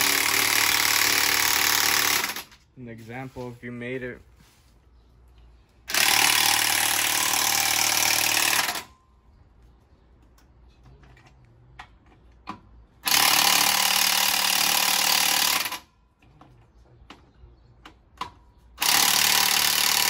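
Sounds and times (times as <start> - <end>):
impact wrench bursts: 0.0 - 2.5, 5.9 - 8.9, 13.0 - 15.9, 18.8 - 20.0.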